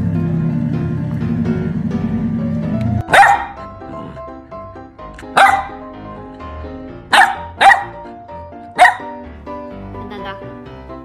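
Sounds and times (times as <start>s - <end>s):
background music: 0.0s - 11.0s
puppy barking: 3.0s - 4.1s, 5.2s - 5.8s, 7.1s - 8.1s, 8.7s - 9.2s.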